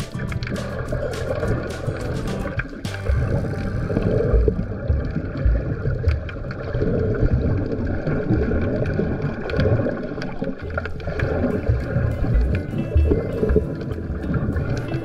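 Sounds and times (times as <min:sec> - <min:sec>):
muffled underwater sloshing: 0:00.0 - 0:15.0
soft thumps: 0:04.3 - 0:06.3.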